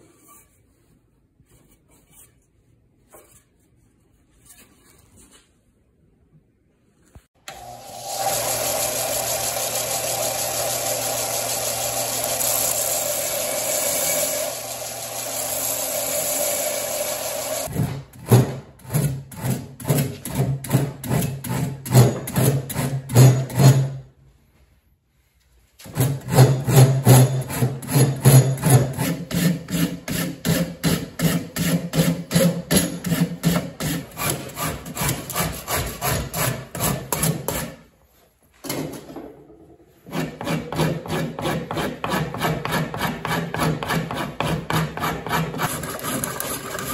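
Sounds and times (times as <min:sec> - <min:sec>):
power tool running: 0:07.4 - 0:17.7
file and rasp on wood: 0:08.2 - 0:17.7, 0:25.8 - 0:37.9, 0:40.0 - 0:46.9.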